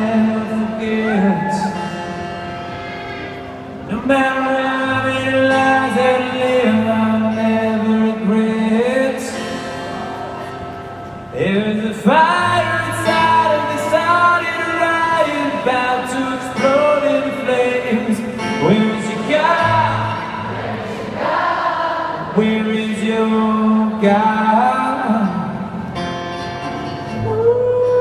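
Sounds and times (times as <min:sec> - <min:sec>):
man singing: 0:00.0 - 0:02.2, 0:03.8 - 0:10.6, 0:11.3 - 0:20.4, 0:22.3 - 0:25.9, 0:27.0 - 0:28.0
acoustic guitar: 0:00.0 - 0:28.0.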